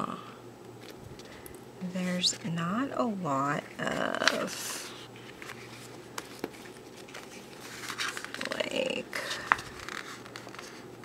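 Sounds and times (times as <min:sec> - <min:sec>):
paper rustling: 0:03.6 - 0:10.9.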